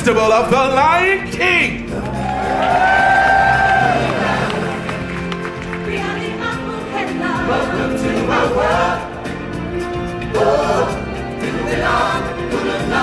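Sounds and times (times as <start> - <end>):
amplified backing music: 0.0 - 13.0
singers on microphones: 1.8 - 9.6, 10.2 - 13.0
choir singing: 2.6 - 13.0.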